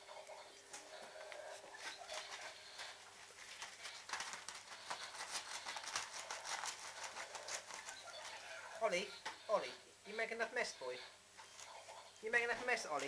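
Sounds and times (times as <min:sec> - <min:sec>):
paper rustling and crinkling: 0:00.7 - 0:08.7.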